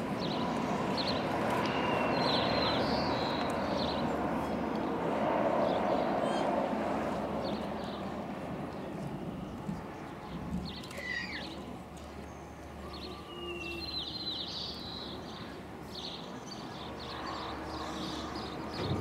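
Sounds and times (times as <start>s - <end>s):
small birds chirping: 8.8s - 19.0s.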